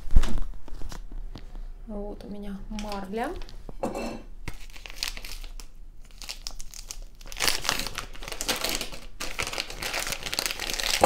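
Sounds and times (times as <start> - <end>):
packaging crinkling and rustling: 0.0 - 1.4, 4.5 - 11.0.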